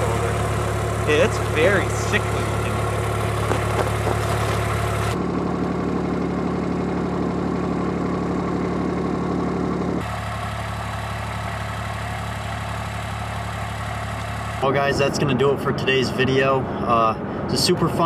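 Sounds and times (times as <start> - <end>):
vehicle engine idling: 0.0 - 18.0.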